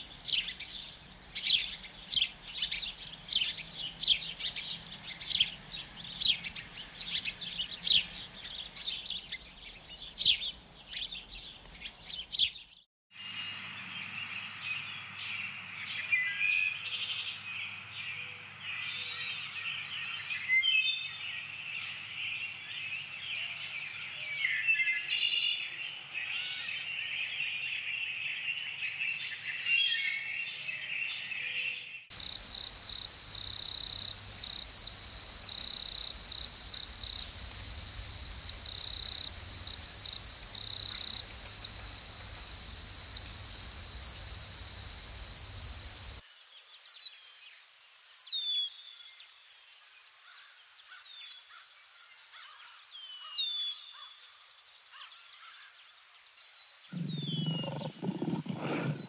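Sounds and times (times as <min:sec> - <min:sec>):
birds chirping and whistling: 0:56.4 - 0:59.0.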